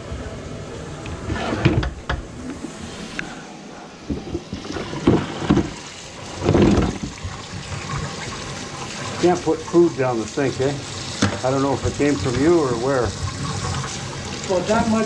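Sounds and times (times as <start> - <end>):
rubbing rumble on microphone: 4.0 - 7.2
bucket and pipes clicking and knocking: 4.0 - 9.4, 11.1 - 12.4.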